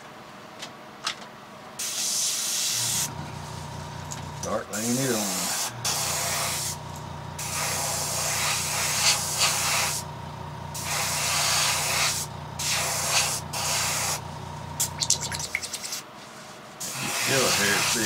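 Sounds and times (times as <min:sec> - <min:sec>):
airbrush spraying in hissing bursts: 0:01.8 - 0:03.6, 0:04.4 - 0:10.1, 0:10.7 - 0:15.0, 0:16.8 - 0:18.0
steady low hum: 0:02.8 - 0:15.9.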